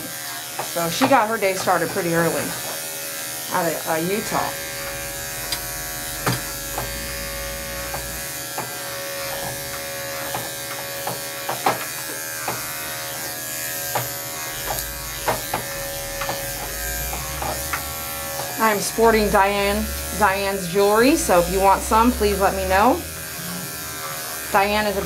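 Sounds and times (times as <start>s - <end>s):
electric clippers buzzing: 0.0s - 25.0s
sharp clipper clicks: 5.4s - 7.0s, 7.9s - 18.6s.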